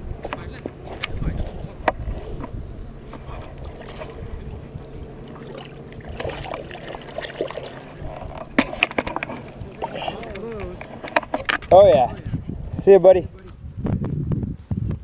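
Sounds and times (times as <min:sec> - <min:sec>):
water sloshing and trickling: 0:02.1 - 0:12.0.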